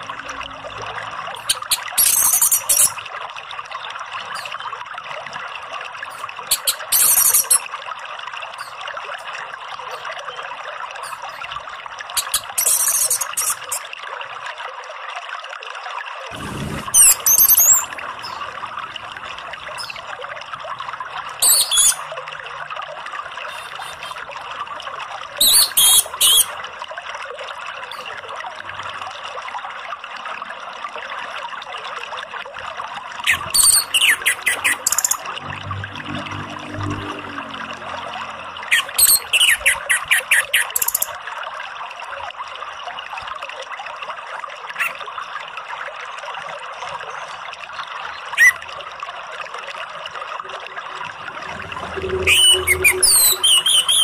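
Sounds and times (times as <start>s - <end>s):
trickling water: 0.0s - 54.0s
thrush singing: 50.5s - 54.0s.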